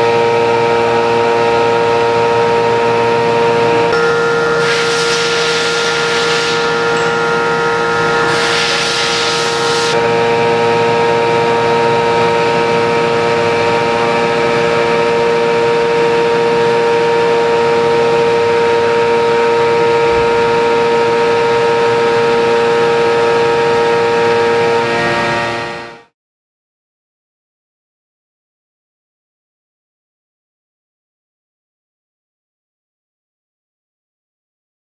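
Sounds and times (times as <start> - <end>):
milling machine cutting whine: 0.1 - 26.0.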